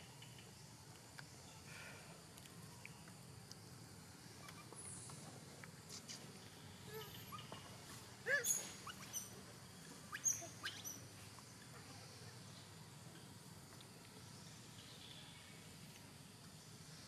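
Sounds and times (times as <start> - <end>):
high-pitched animal chirps: 8.3 - 9.3, 10.1 - 11.0.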